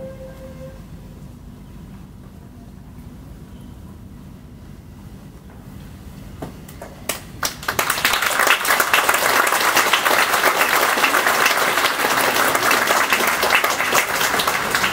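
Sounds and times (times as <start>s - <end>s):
audience applause: 7.1s - 14.9s.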